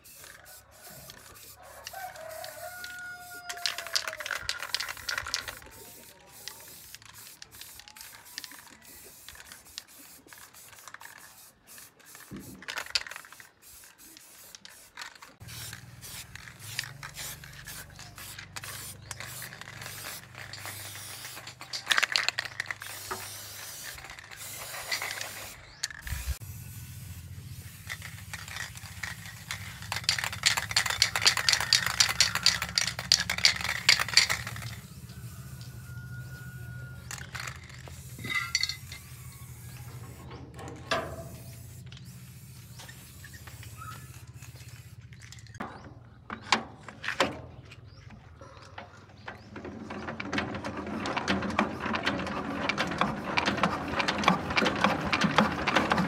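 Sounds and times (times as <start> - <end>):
rooster crowing: 0.4 - 4.5, 30.8 - 33.2, 34.8 - 37.3
clatter and scraping on metal: 12.0 - 26.2, 27.8 - 35.1, 37.0 - 56.0.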